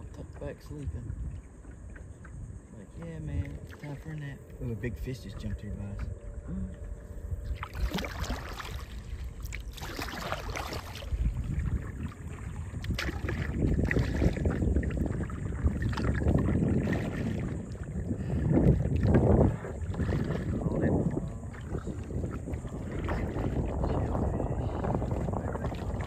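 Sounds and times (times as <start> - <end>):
paddle splashing water: 0.0 - 26.0
wind buffeting microphone: 0.0 - 26.0.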